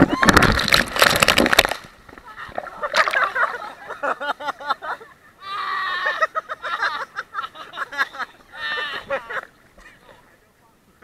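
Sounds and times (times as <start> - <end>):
water splashing: 0.0 - 4.2
long held cry: 5.4 - 6.4, 8.5 - 9.4
people shouting and shrieking: 5.4 - 6.4, 8.5 - 9.4.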